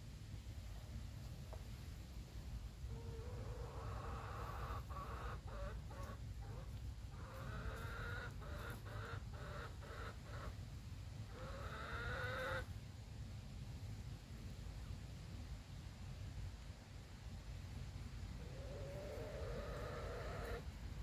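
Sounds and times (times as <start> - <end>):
chicken making low calls: 2.9 - 10.5, 11.3 - 12.7, 18.4 - 20.7.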